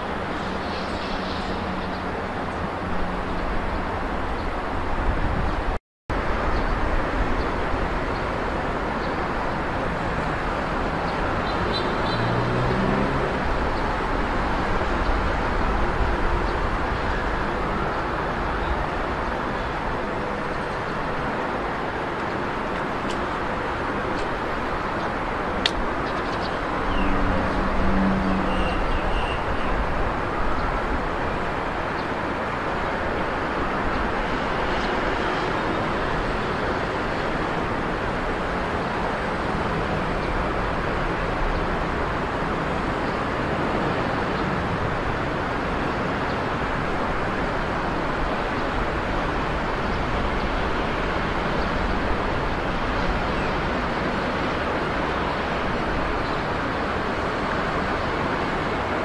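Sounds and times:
distant road traffic rush: 0:00.0 - 0:59.0.

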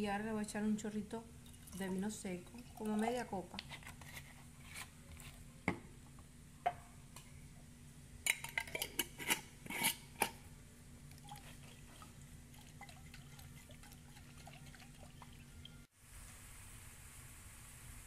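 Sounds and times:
utensil clinking glass jar: 0:12.6 - 0:15.8.

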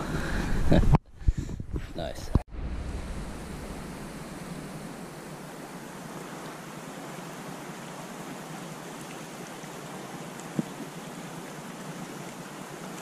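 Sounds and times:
creek water rushing: 0:02.6 - 0:13.0.

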